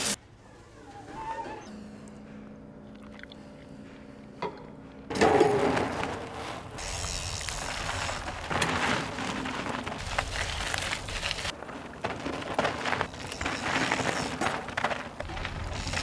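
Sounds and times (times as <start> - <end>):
bike tyre and wind noise: 5.1 - 16.0.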